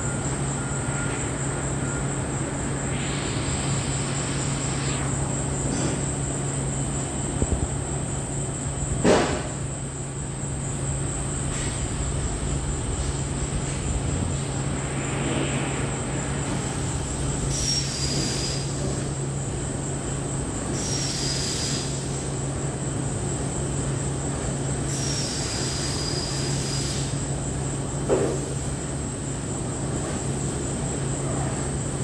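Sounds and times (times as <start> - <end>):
hissing bursts with falling whistle: 0.0 - 5.9, 14.5 - 19.0
machinery hum with whine: 0.0 - 32.0.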